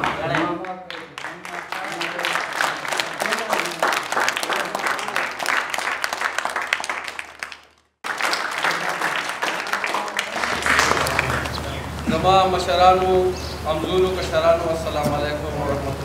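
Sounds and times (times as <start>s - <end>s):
audience applauding: 0.0s - 13.4s
voices in crowd: 8.8s - 16.0s.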